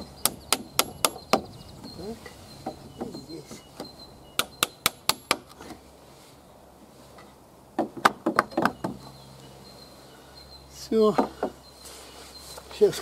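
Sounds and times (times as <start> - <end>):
hammer striking nail into wood: 0.2 - 1.5, 4.4 - 5.6.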